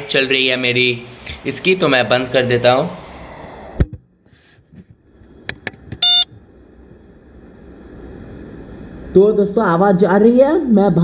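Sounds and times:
faint steady hum: 0:00.0 - 0:11.0
short electronic beep: 0:06.0 - 0:06.3.

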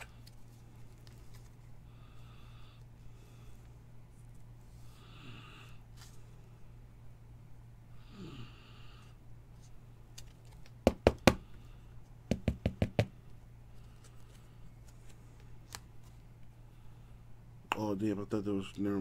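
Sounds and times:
knocks on hard tabletop: 0:12.3 - 0:13.1.

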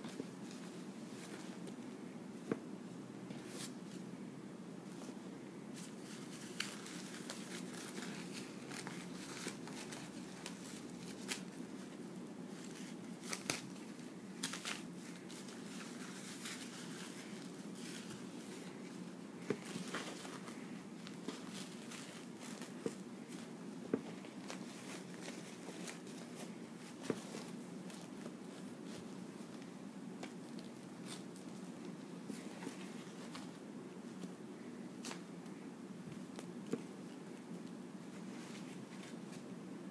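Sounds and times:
low background hum: 0:00.0 - 0:39.9
diaper crinkling and rustling: 0:05.8 - 0:29.7.

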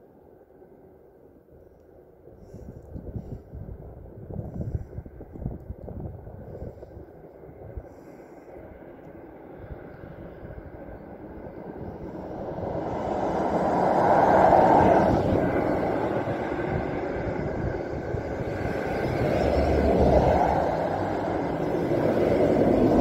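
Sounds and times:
vehicle passing: 0:11.5 - 0:23.0.

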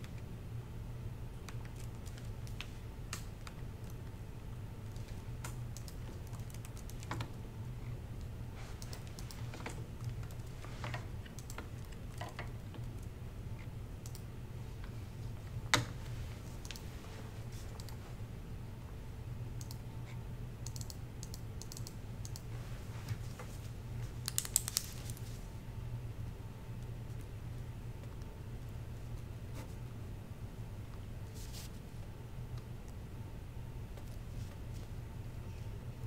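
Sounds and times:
steady low hum: 0:00.0 - 0:36.0
laptop keyboard typing: 0:01.4 - 0:02.6, 0:04.9 - 0:07.3, 0:08.8 - 0:10.6, 0:11.3 - 0:13.1, 0:20.6 - 0:22.5, 0:24.2 - 0:25.2.

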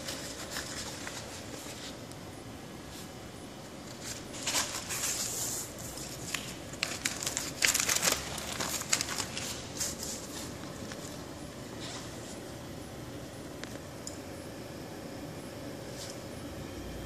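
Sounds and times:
plastic film crinkling: 0:00.0 - 0:02.0, 0:03.8 - 0:12.4.

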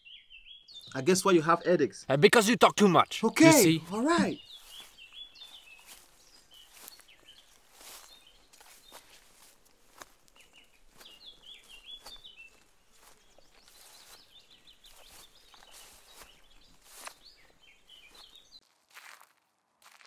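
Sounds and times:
birds chirping: 0:00.0 - 0:18.6
footsteps crunching through leaves: 0:04.5 - 0:20.0.

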